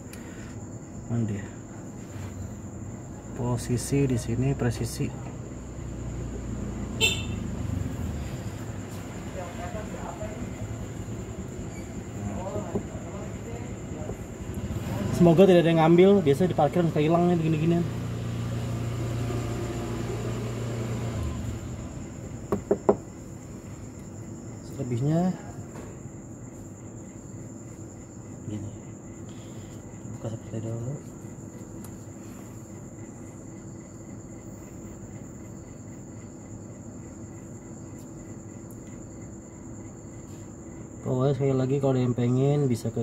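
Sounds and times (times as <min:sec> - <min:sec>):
cricket trill: 0:00.0 - 0:43.0
low background hum: 0:00.0 - 0:43.0.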